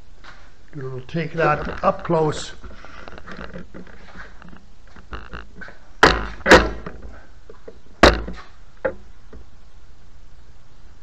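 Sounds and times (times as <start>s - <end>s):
faint clicks and scuffs: 0.2s - 5.9s
dull thumps: 1.4s - 9.5s.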